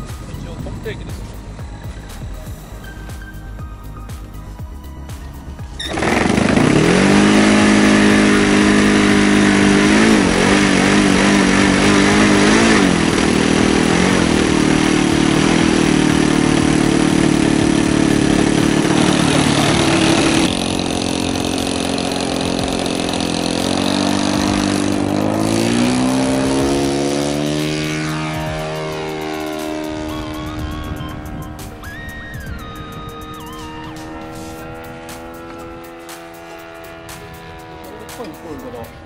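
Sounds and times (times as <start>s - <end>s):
electric starter: 5.7s - 38.8s
model aircraft engine running: 5.7s - 39.0s.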